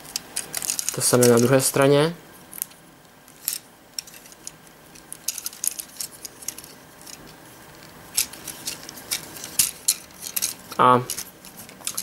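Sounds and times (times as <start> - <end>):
plastic toy parts clicking: 8.2 - 12.0.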